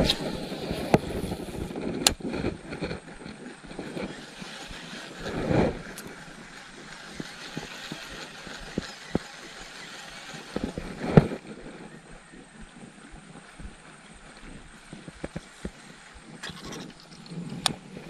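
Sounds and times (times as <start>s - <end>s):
fishing reel winding: 3.6s - 11.0s
fishing reel clicks: 3.7s - 11.0s.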